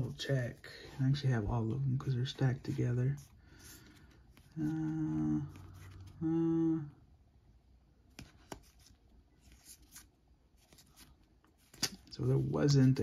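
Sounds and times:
trading cards rustling: 2.0 - 6.2, 8.1 - 13.0
person humming: 4.6 - 7.0.

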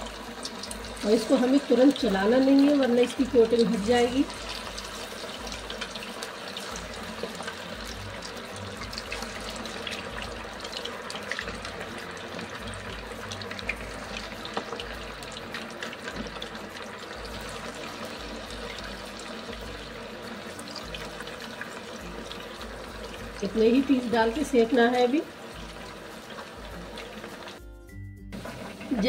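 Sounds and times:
chicken deep-frying in oil: 0.0 - 27.7, 28.3 - 29.0.

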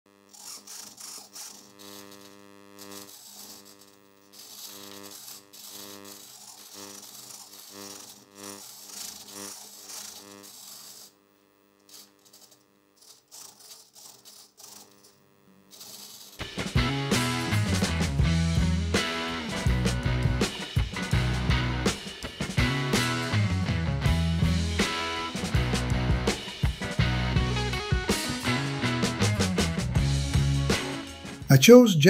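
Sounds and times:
servos buzzing: 0.1 - 17.9.

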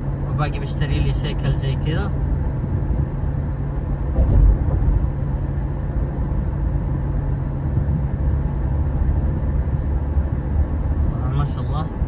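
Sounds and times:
car engine and road rumble: 0.0 - 12.0
car bump: 4.1 - 5.1.

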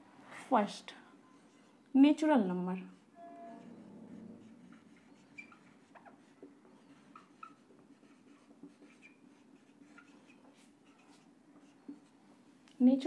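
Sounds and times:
marker pen squeaking on whiteboard: 1.3 - 1.9, 3.0 - 12.1.

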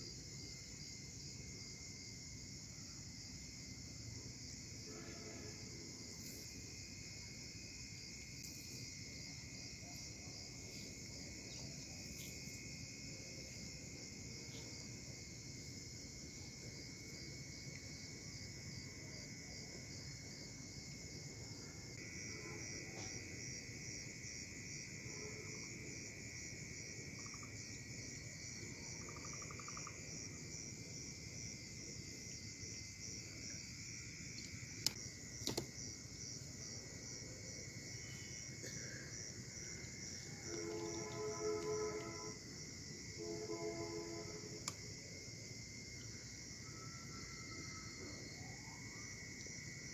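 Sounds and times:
crickets pulsing trill: 0.0 - 49.9
low continuous trill: 28.2 - 49.4.

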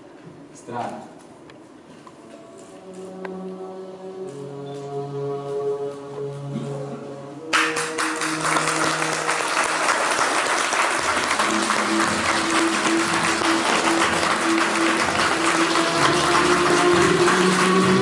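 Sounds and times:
music playing: 2.2 - 18.0
audience applauding: 7.5 - 18.0.

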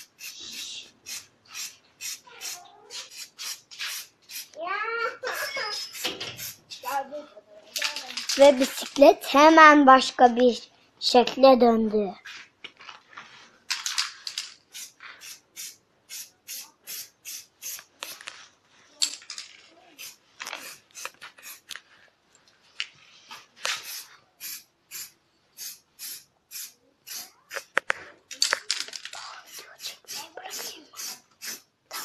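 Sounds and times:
spray paint can hissing: 0.0 - 4.6, 5.4 - 6.6, 14.7 - 18.2, 20.0 - 21.7, 23.7 - 27.8, 29.5 - 32.0.

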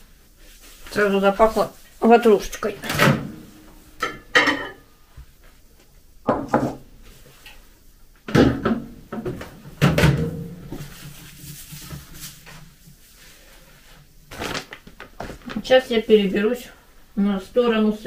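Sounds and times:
dishes knocking and clunking: 4.0 - 4.9, 6.2 - 6.8, 8.3 - 10.8.

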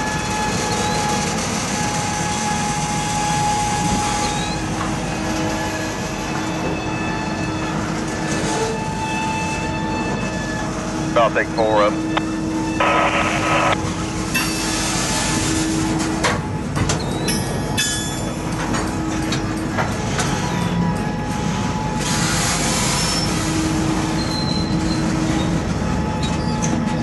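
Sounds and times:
freight car wheels rumbling on rail: 0.0 - 27.0
faint wheel squeals: 4.1 - 4.7, 22.8 - 23.5, 24.1 - 25.6.

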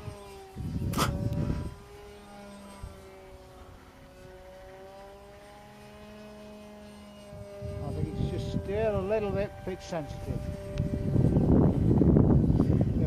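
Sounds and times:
model airplane motor droning: 0.0 - 13.0
rumble with sharp click: 10.6 - 10.9.

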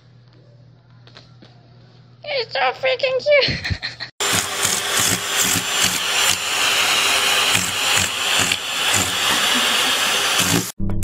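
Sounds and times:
vacuum cleaner running: 4.2 - 10.8.

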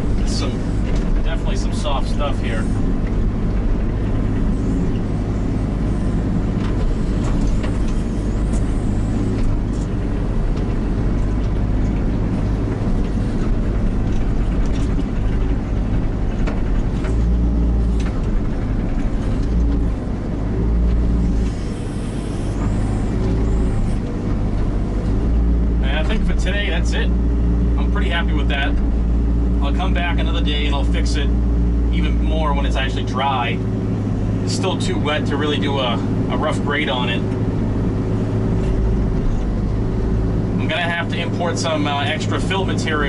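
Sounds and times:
excavator diesel engine running: 0.0 - 43.0
sharp clicks and knocks: 0.1 - 1.5, 9.3 - 26.5.

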